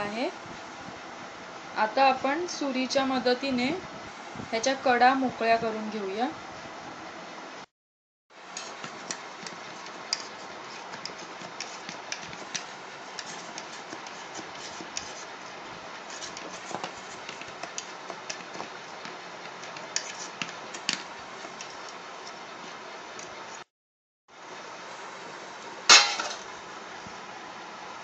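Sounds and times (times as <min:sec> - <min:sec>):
knife scraping inside a pot: 0:08.6 - 0:15.4, 0:16.0 - 0:19.0, 0:19.6 - 0:22.4.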